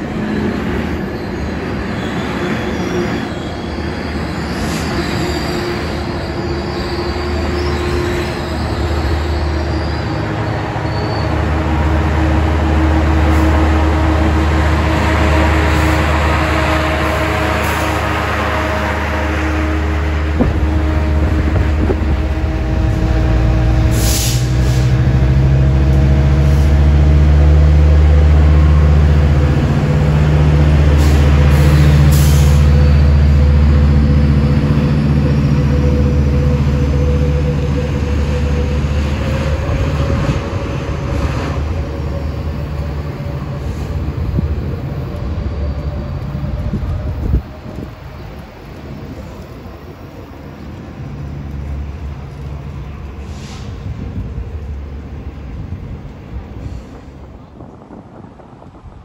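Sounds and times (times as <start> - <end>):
diesel locomotive engine drone: 0.0 - 59.0
faint high wheel squeal: 0.3 - 12.3, 31.0 - 33.8.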